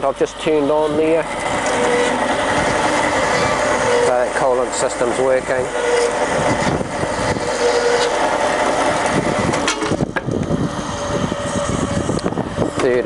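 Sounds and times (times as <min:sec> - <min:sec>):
bandsaw cutting steel: 0:01.4 - 0:10.0.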